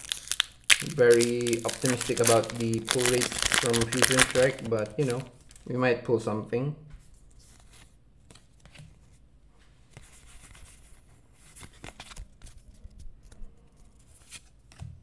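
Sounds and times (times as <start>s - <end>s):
trading cards rustling: 0.0s - 5.7s.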